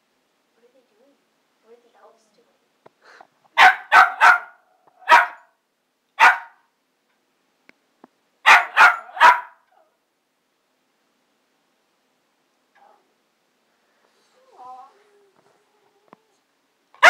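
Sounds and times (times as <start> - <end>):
small dog barking: 3.6 - 5.6, 6.2 - 6.7, 8.4 - 10.0.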